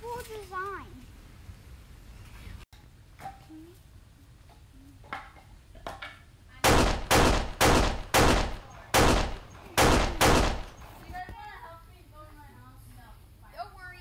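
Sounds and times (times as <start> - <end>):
loud gunshots with echo: 6.6 - 10.9.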